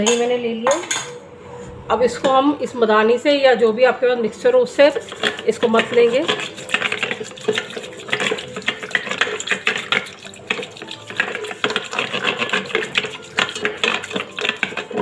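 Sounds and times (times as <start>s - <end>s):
curd swishing: 4.9s - 14.6s.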